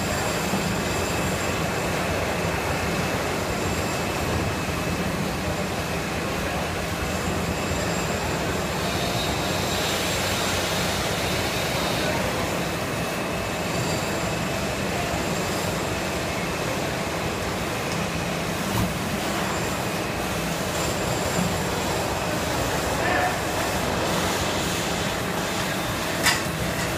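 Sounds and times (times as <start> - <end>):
injection moulding machine running: 0.0 - 26.9.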